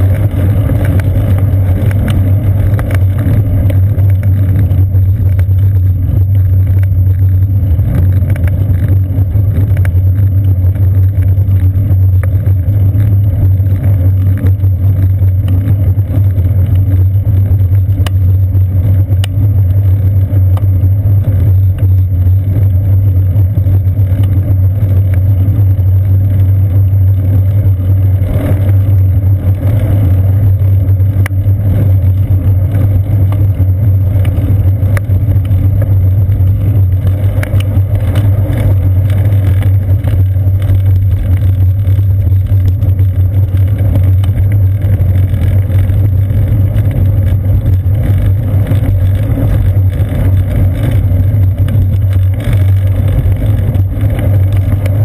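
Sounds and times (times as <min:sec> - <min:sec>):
bicycle rolling on pavement: 0:00.0 - 0:55.0
faint ticks: 0:09.6 - 0:22.9.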